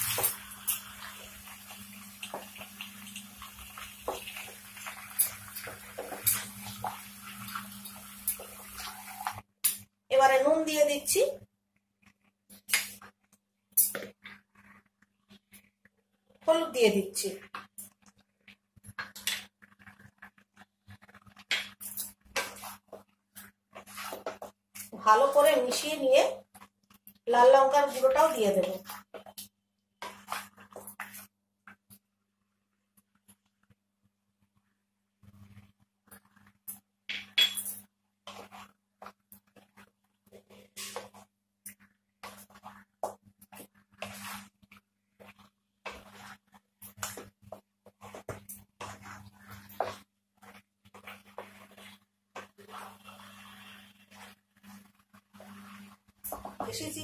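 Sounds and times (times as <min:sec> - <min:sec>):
spatula scraping chicken in pan: 0:18.9 - 0:26.6, 0:30.0 - 0:31.3, 0:38.2 - 0:56.9.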